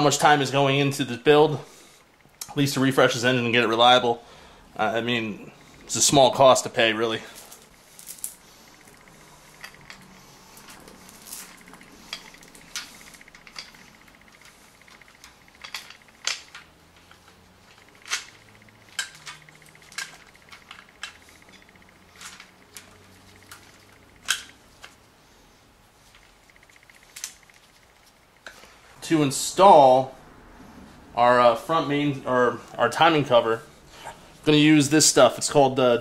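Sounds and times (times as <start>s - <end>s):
metal chain links clinking: 7.1s - 24.6s.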